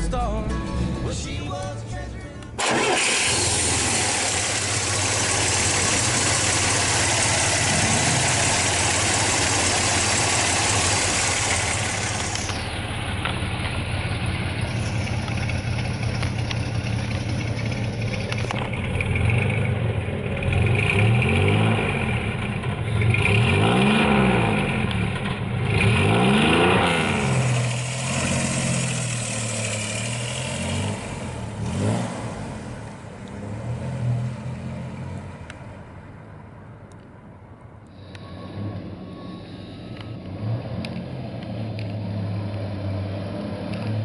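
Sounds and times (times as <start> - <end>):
truck engine idling and revving: 0.0 - 44.0.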